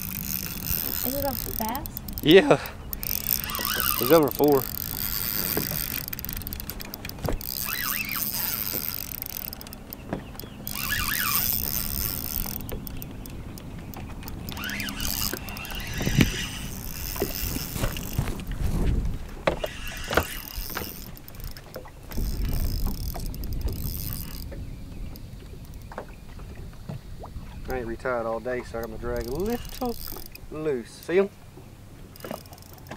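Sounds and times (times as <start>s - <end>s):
fishing reel clicking and whirring: 0.0s - 18.5s, 19.4s - 25.9s, 27.7s - 31.3s, 32.1s - 32.9s
water lapping against boat hull: 0.0s - 32.9s
wind on microphone: 10.7s - 30.6s.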